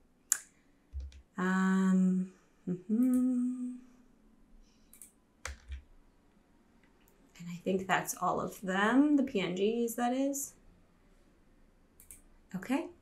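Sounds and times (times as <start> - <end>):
person humming: 1.4 - 3.9.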